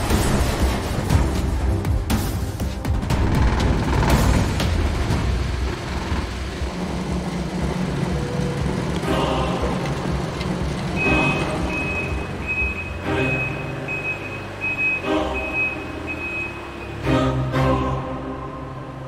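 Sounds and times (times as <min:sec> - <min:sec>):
background music: 0:00.0 - 0:19.0
forklift warning beeps: 0:10.9 - 0:17.0.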